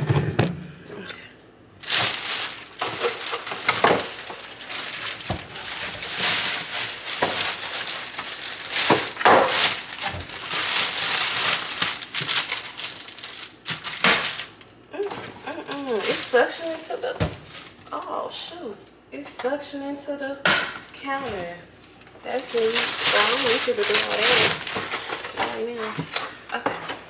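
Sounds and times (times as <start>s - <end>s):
packaging crinkling and rustling: 1.8s - 18.2s, 21.2s - 26.4s.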